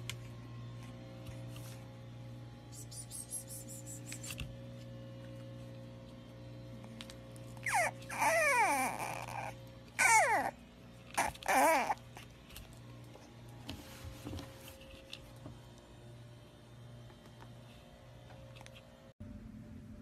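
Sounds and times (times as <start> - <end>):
puppy whining cries: 7.6 - 12.3.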